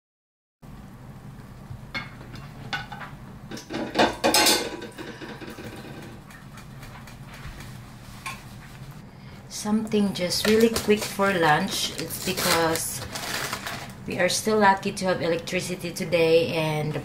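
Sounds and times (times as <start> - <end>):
low steady hum: 0.6 - 17.0
kitchen utensils and dishes clattering: 2.0 - 6.7.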